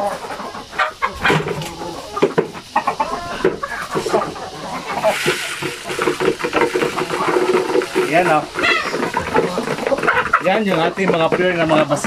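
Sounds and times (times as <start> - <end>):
chickens clucking: 0.0 - 12.0
feed pouring into feeder: 4.9 - 10.0.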